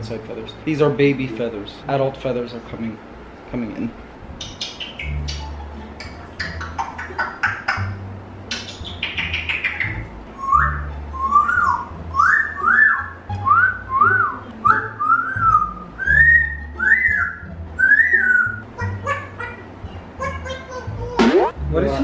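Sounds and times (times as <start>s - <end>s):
background music: 0.0s - 2.4s, 4.8s - 22.0s
parrot whistling: 4.4s - 19.6s.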